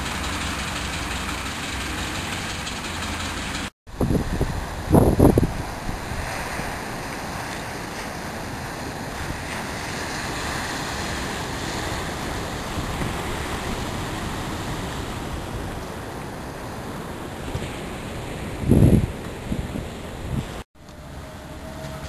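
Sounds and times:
surf breaking on shore: 0:00.0 - 0:20.6
wind buffeting microphone: 0:03.9 - 0:20.6.

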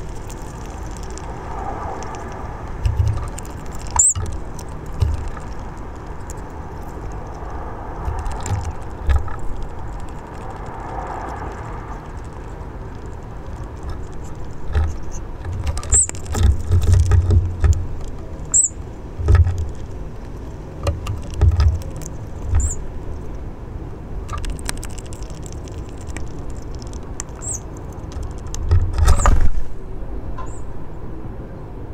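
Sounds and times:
low outdoor rumble: 0:00.0 - 0:31.9
high-pitched bird calls: 0:03.9 - 0:04.2, 0:15.8 - 0:16.2, 0:18.4 - 0:18.8, 0:22.6 - 0:22.8, 0:27.3 - 0:27.7, 0:30.4 - 0:30.7
sharp clicks: 0:24.3 - 0:29.4.

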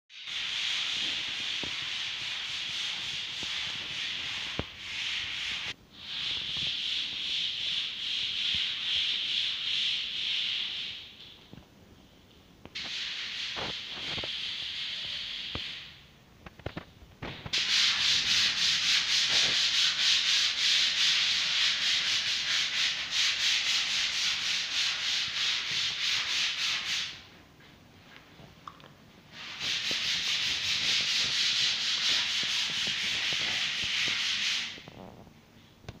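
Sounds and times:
wall being sanded: 0:00.2 - 0:11.0, 0:17.5 - 0:27.2, 0:29.3 - 0:34.9.

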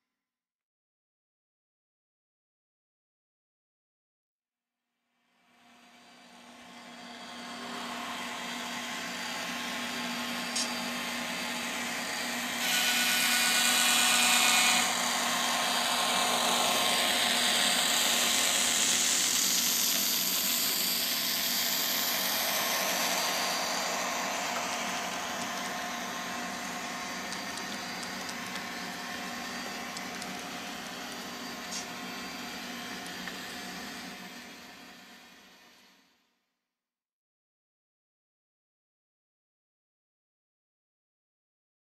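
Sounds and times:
model train diesel engine sound: 0:05.9 - 0:35.8.

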